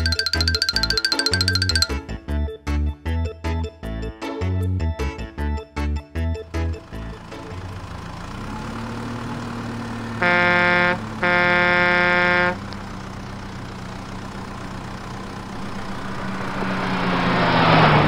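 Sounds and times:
low engine hum: 0:06.5 - 0:18.0
truck horn honking: 0:10.1 - 0:12.7
rush of noise: 0:15.5 - 0:18.0.

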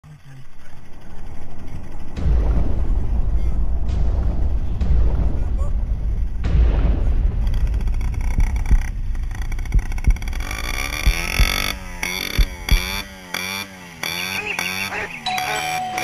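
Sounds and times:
wind rumble: 0:00.2 - 0:13.4
low thumps: 0:00.8 - 0:13.3
synth music with bass note: 0:02.2 - 0:13.0, 0:14.8 - 0:16.0
moped engines running: 0:09.7 - 0:16.0.

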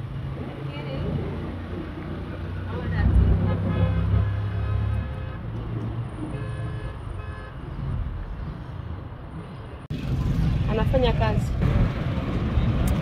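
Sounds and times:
road and traffic noise: 0:00.0 - 0:13.0
motorcycle engine rumble: 0:09.5 - 0:13.0.

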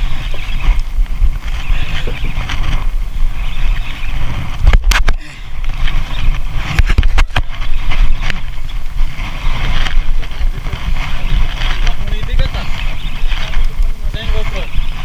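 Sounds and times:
wind on microphone: 0:00.0 - 0:15.0.

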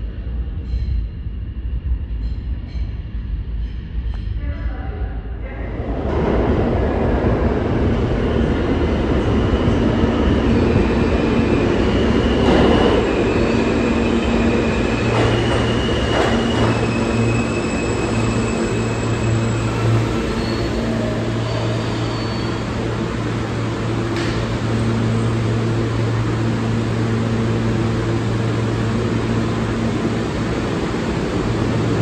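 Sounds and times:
subway train wheels rumbling: 0:00.0 - 0:32.0
high-pitched wheel squeals: 0:11.8 - 0:22.9.

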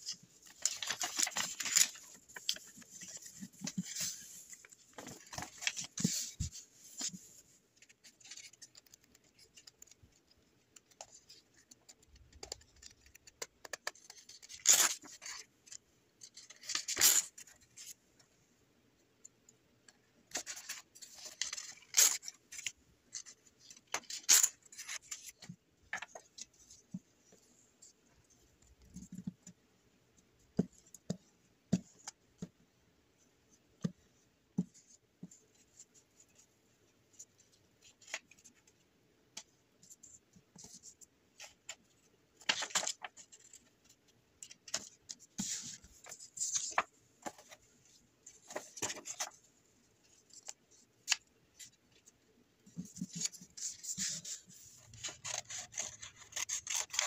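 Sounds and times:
paper rustling and crinkling: 0:00.0 - 0:15.5, 0:41.4 - 0:52.1, 0:52.7 - 0:57.0.

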